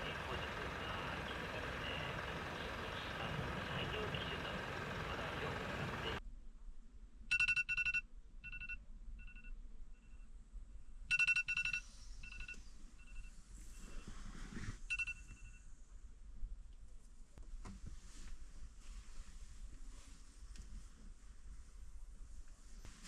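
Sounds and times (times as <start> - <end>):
steady outdoor hiss: 0.0 - 6.2
alarm ringtone beeping: 7.3 - 9.5, 11.1 - 13.3, 14.9 - 15.6.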